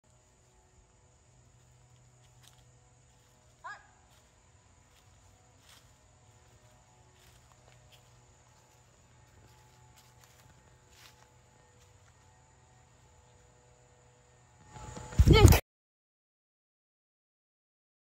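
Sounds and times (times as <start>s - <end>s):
low steady hum: 0.0s - 15.6s.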